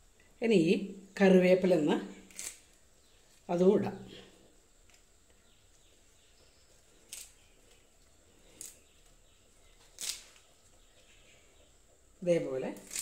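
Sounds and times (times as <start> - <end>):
leaves rustling as plucked: 2.3 - 2.7, 7.0 - 7.8, 9.8 - 10.5, 12.7 - 13.0.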